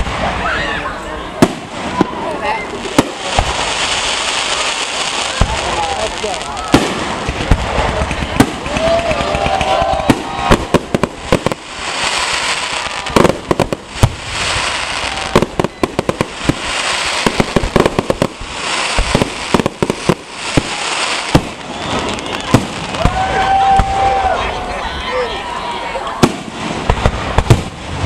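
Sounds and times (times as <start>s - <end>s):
firework hiss: 0.0s - 24.1s
firework shells bursting: 5.3s - 23.0s.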